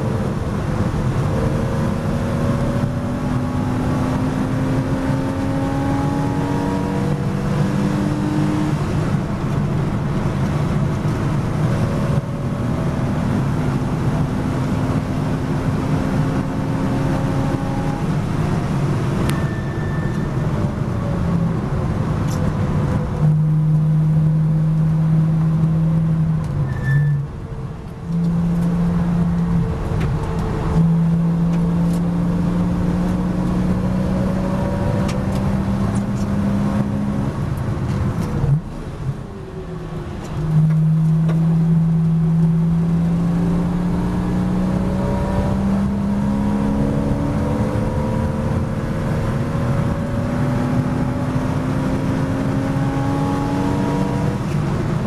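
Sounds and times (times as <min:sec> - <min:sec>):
race car engine shifting gears: 0:27.8 - 0:39.0, 0:40.1 - 0:55.0.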